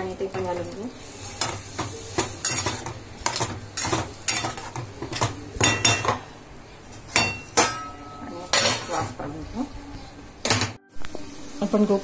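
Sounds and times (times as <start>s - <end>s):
spatula knocking and scraping pan: 1.4s - 6.3s.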